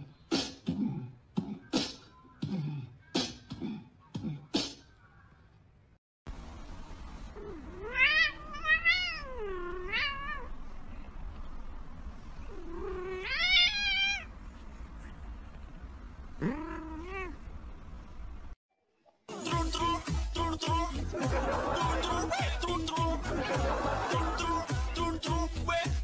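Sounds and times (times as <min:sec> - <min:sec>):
cat yowling: 0:07.4 - 0:10.5, 0:12.7 - 0:14.3.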